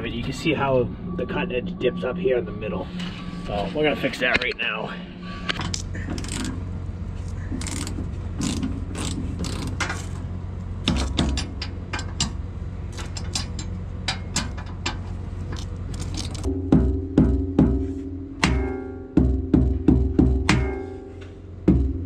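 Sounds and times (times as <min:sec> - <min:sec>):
engine idling: 0:04.9 - 0:22.0
ratchet wrench clicking: 0:05.7 - 0:06.6, 0:07.6 - 0:10.1.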